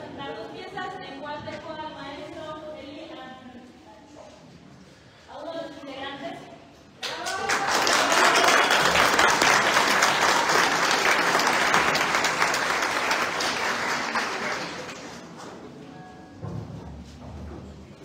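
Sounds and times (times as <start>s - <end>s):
audience applauding: 7.0s - 15.3s.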